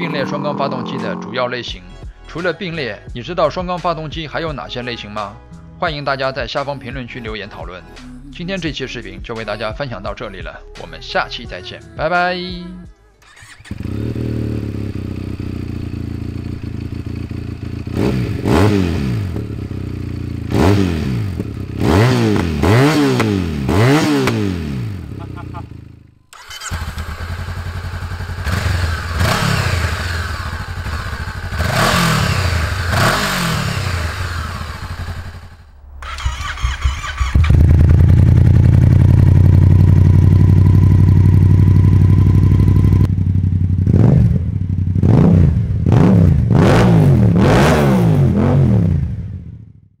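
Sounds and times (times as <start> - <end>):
motorcycle engine running: 13.2 - 47.4
motorcycle engine revving: 13.2 - 49.7.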